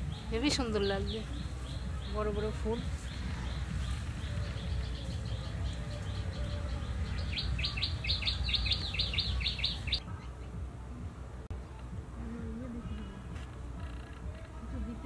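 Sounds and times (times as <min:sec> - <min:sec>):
small bird chirping: 0:00.0 - 0:10.0
steady low rumble: 0:00.0 - 0:15.0.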